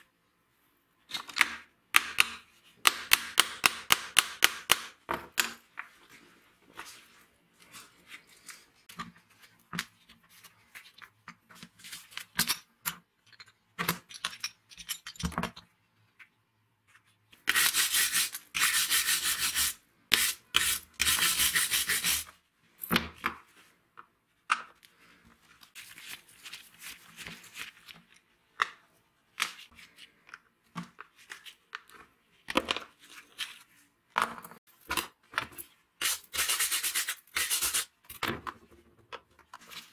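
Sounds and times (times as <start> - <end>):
clicks and knocks handling parts: 10.8 - 16.3.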